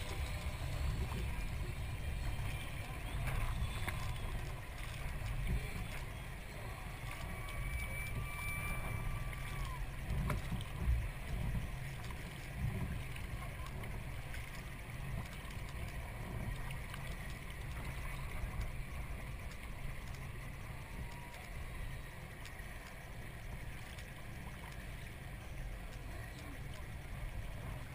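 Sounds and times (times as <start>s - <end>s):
low rumble: 0.0s - 27.9s
paddle splashing: 0.0s - 27.9s
water lapping at hull: 0.0s - 27.9s.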